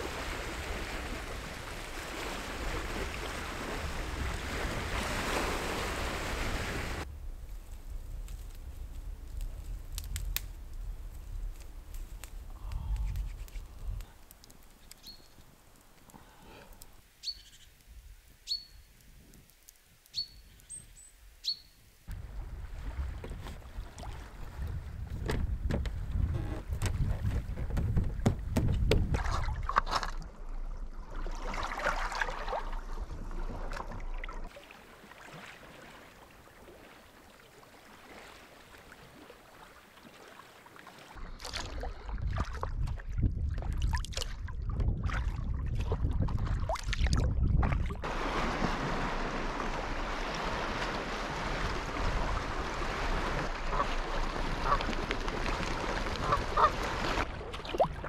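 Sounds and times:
paddle in water: 0.0 - 7.2, 22.1 - 58.0
wind rumbling on microphone: 0.0 - 14.3, 22.1 - 31.1, 41.2 - 58.0
sharp knocks: 27.6 - 29.3
hiss of water: 48.0 - 54.8.

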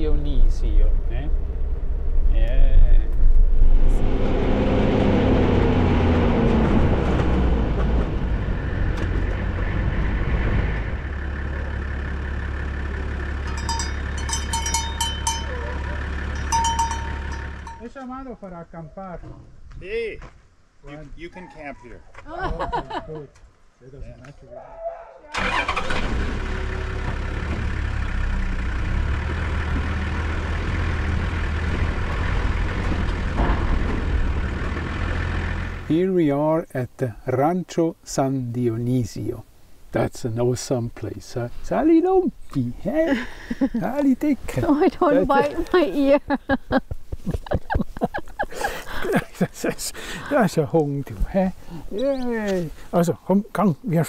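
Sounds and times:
engine running steadily: 6.5 - 17.8
car engine idling: 10.8 - 17.9, 25.4 - 35.9
metallic clanking strikes: 13.4 - 17.9.

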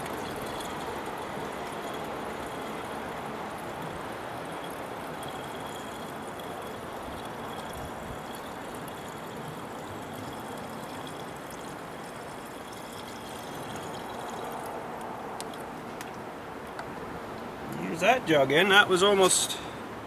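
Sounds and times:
liquid pouring from plastic jug: 0.0 - 14.8.

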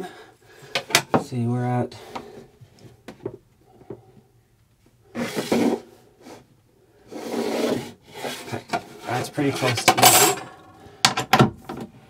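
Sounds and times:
wooden board scraping on floor: 5.1 - 6.4, 7.1 - 9.7.

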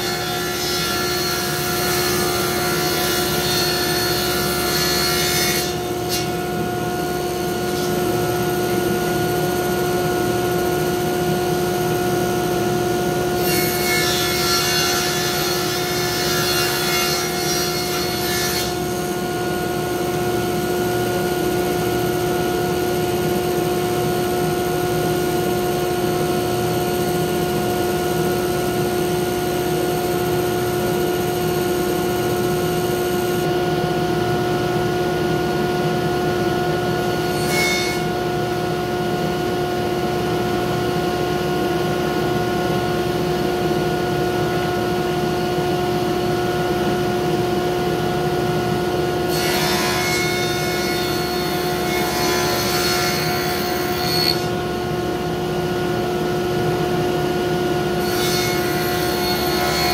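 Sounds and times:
saw cutting wood: 0.0 - 9.7, 13.3 - 19.6, 24.9 - 33.5, 49.3 - 54.6, 58.0 - 59.9
table saw motor hum: 0.0 - 38.8, 48.8 - 59.9.

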